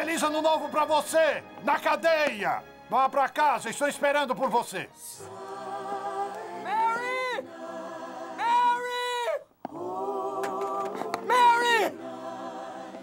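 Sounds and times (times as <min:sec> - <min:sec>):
choir singing long held notes: 0:05.2 - 0:13.0.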